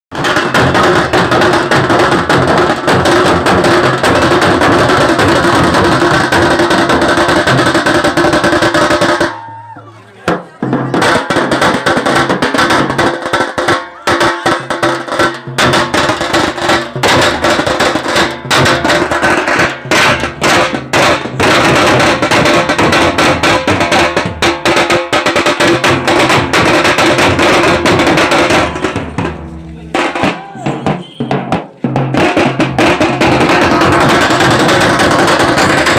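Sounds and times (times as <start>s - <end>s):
drums beaten with sticks: 0.1s - 35.9s
crowd voices: 9.3s - 11.3s, 28.6s - 31.8s.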